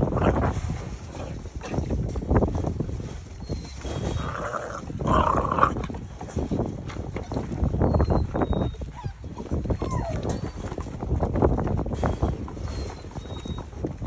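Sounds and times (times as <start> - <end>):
paws scrabbling on wooden boards: 0.0 - 14.0
puppy whines: 3.4 - 5.8, 7.2 - 10.9, 12.6 - 13.8.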